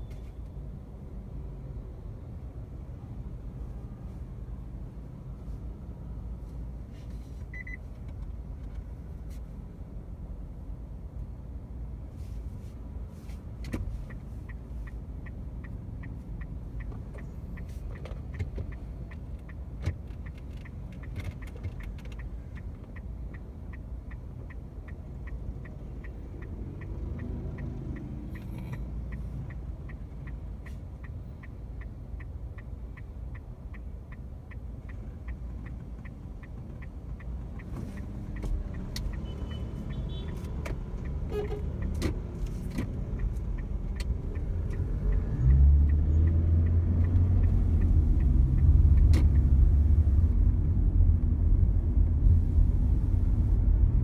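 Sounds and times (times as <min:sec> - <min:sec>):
low rumble of traffic: 0:00.0 - 0:54.0
turn signal ticking: 0:00.0 - 0:54.0.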